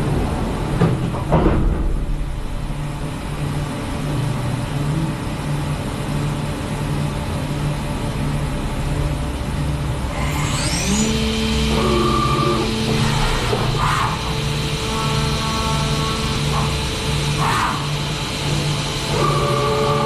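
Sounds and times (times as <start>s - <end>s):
low hum: 0.0s - 19.1s
rising whine: 2.2s - 20.0s
milling machine cutting metal: 10.0s - 20.0s.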